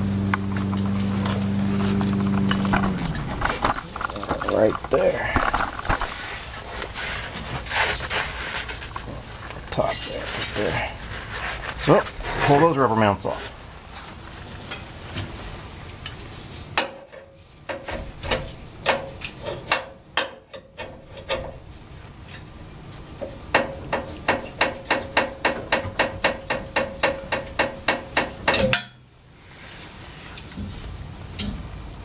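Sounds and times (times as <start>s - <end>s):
metallic knocks on exhaust pipe: 16.8s - 21.6s, 23.2s - 29.0s.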